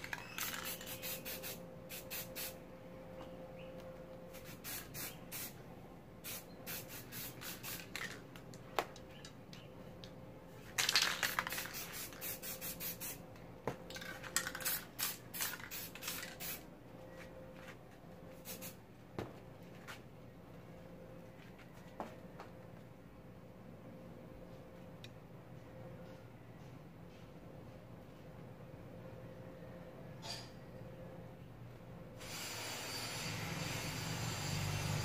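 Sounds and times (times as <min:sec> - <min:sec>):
spray paint can hissing: 0:00.0 - 0:02.6, 0:04.3 - 0:05.6, 0:06.2 - 0:08.2, 0:10.8 - 0:13.2, 0:14.3 - 0:16.6, 0:18.4 - 0:18.8.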